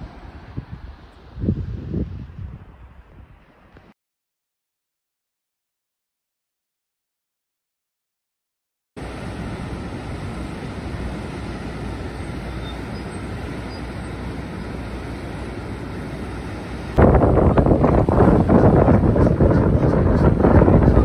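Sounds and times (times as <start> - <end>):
turbulent water rushing: 9.0 - 21.0.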